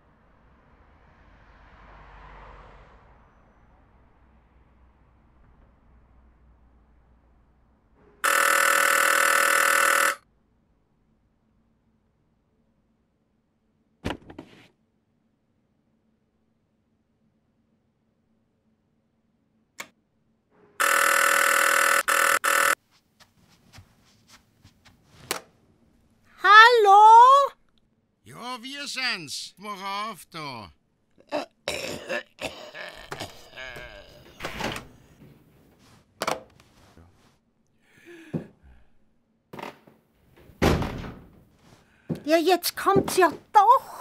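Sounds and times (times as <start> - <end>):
electric doorbell ringing: 8.2 - 10.2, 20.8 - 22.8
faint footsteps: 22.8 - 25.3.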